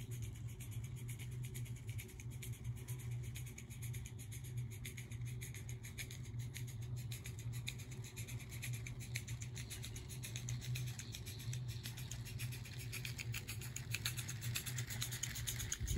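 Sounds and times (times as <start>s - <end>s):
steady low hum: 0.0s - 15.9s
small steam locomotive ticking: 6.0s - 15.9s.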